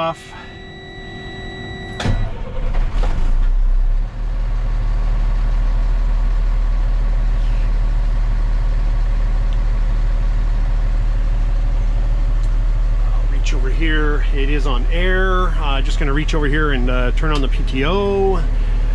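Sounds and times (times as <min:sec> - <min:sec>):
diesel engine starting and idling: 0:00.0 - 0:18.9.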